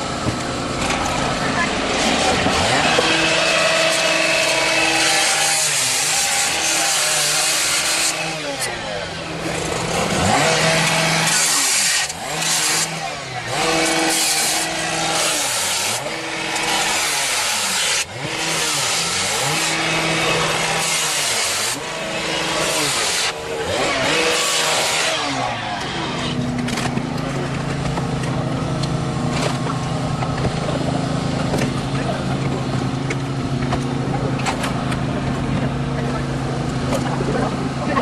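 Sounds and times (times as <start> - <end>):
metal crunching and scraping: 0.0 - 38.0
power unit engine running: 21.7 - 38.0.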